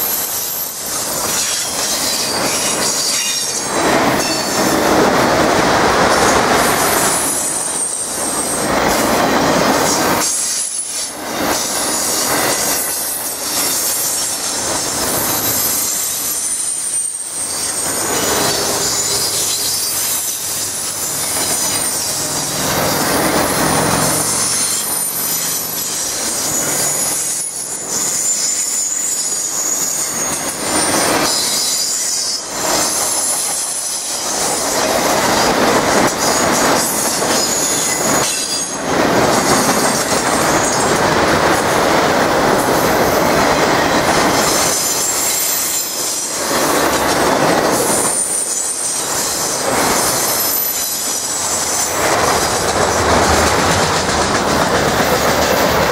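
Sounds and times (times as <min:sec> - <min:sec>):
freight cars rumbling on rails: 0:00.0 - 0:55.9
wavering wheel squeal: 0:11.8 - 0:34.8.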